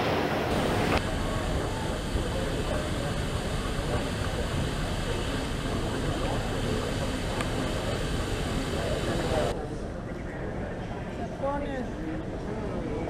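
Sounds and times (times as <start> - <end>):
steady hum: 0.0 - 9.6
faint indistinct voices: 0.0 - 13.0.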